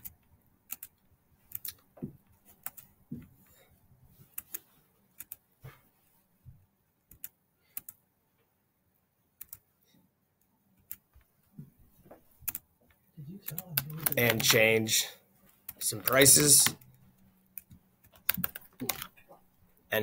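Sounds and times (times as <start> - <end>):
mouse and keyboard clicking: 0.0 - 1.8, 2.6 - 2.9, 4.3 - 5.4, 7.1 - 8.0, 9.4 - 9.7, 12.4 - 12.6, 13.5 - 14.6, 15.7 - 19.2.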